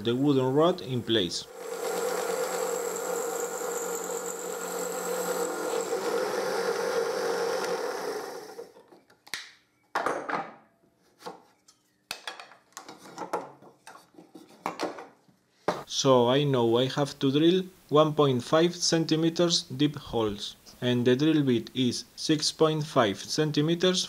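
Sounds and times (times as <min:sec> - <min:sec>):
drill press boring wood: 0:01.5 - 0:08.8.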